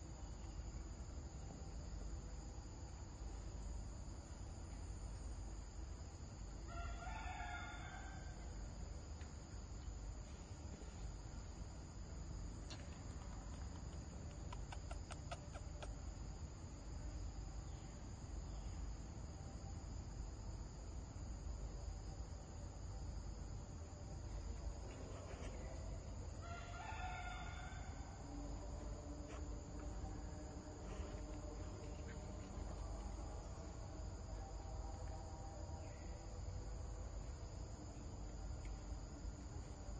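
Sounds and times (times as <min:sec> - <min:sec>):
insects droning: 0:00.0 - 0:39.9
rooster crowing: 0:06.7 - 0:08.4, 0:26.4 - 0:28.5.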